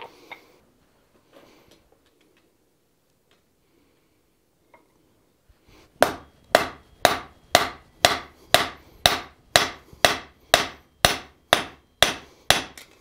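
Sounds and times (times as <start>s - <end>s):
hammer striking metal on anvil: 6.0s - 13.0s.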